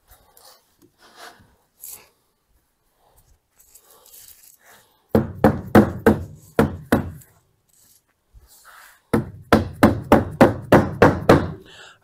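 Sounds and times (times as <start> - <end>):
sharp knocks on wooden panel: 5.1 - 7.2, 9.1 - 11.6.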